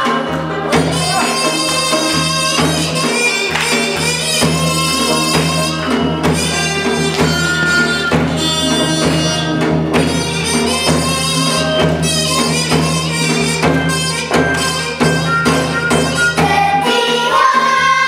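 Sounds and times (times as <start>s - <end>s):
sharp percussion strikes: 0.0s - 18.0s
traditional folk song music: 0.0s - 18.0s.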